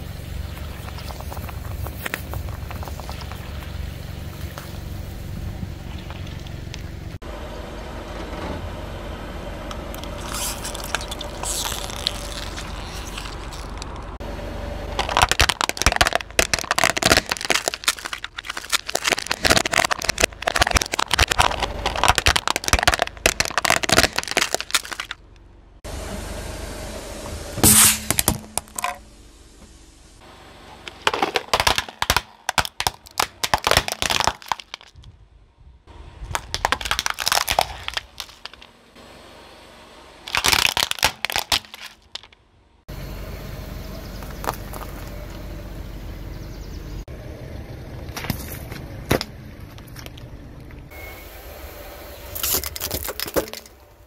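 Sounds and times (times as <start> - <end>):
steady low rumble: 0.0 - 7.9, 34.8 - 40.4
tyre crushing brittle objects: 0.5 - 4.8, 9.7 - 14.2, 14.9 - 25.2, 30.8 - 35.1, 36.3 - 38.7, 40.3 - 42.4, 52.3 - 53.9.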